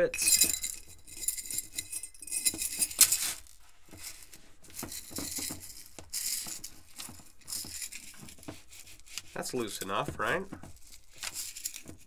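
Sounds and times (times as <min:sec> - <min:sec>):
chainmail rings jingling: 0:00.0 - 0:08.4.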